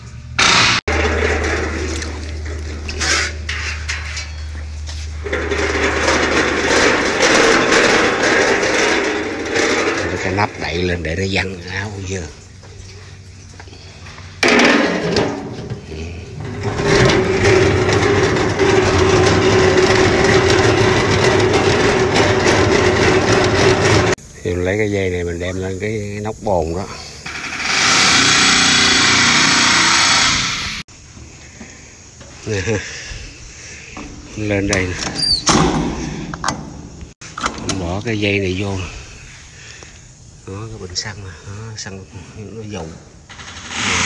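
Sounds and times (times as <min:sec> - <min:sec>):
loud rough noise: 0:00.0 - 0:12.2, 0:14.4 - 0:24.2, 0:27.3 - 0:30.8, 0:43.2 - 0:44.0
fuel sloshing in metal bucket: 0:00.9 - 0:24.2.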